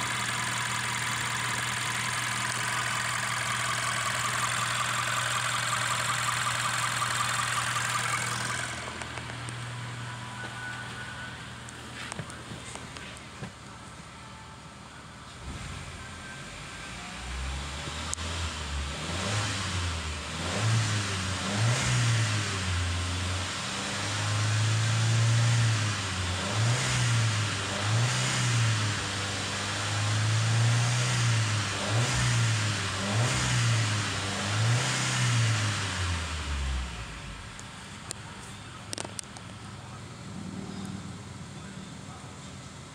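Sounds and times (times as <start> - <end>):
car engine revving: 0.0 - 10.7, 17.1 - 37.7.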